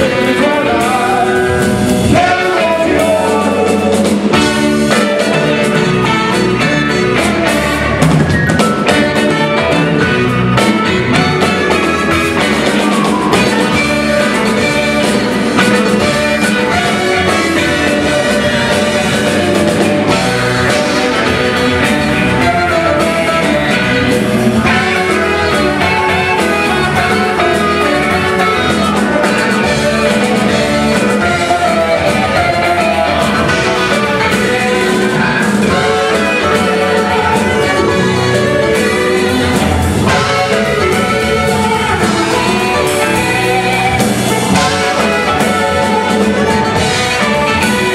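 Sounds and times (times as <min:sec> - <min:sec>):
drum kit: 0:00.0 - 0:47.9
electric bass guitar: 0:00.0 - 0:47.9
saxophone: 0:00.0 - 0:47.9.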